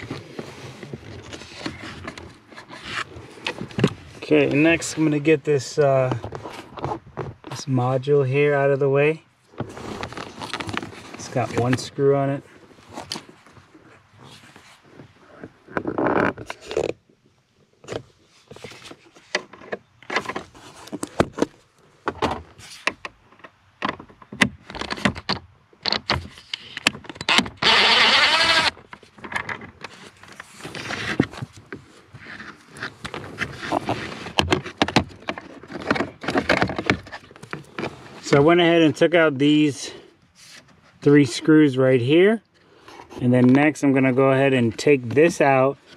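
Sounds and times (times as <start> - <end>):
plastic scraping and rattling: 0.0 - 5.1, 6.0 - 7.6, 9.5 - 17.0, 17.8 - 38.5.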